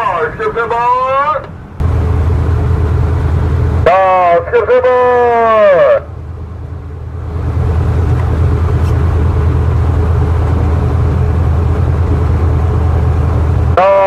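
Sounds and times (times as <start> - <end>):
wind and wake rushing: 0.0 - 13.9
low engine rumble: 0.0 - 14.0
drawn-out falling call: 7.3 - 14.0.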